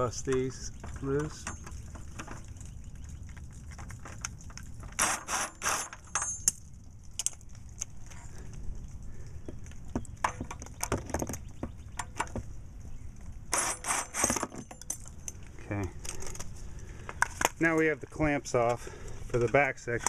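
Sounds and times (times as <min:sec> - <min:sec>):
metal clicks and clinks: 0:05.8 - 0:07.9, 0:14.1 - 0:16.4.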